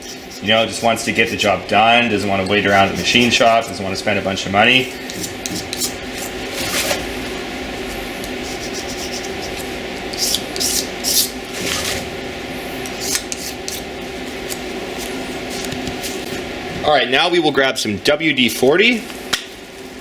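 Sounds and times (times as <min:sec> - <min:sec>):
razor blade scraping metal: 0:00.0 - 0:01.6, 0:05.1 - 0:07.0, 0:08.4 - 0:11.8, 0:12.8 - 0:13.9
steady hum: 0:00.0 - 0:20.0.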